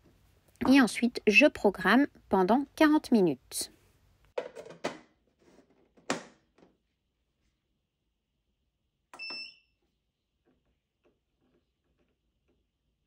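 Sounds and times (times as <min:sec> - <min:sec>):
short electronic beep: 0:09.2 - 0:09.6.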